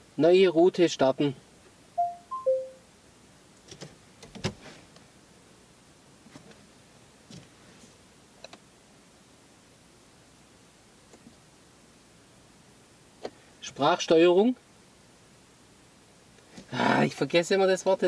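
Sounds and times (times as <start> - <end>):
electronic beeps: 2.0 - 2.8.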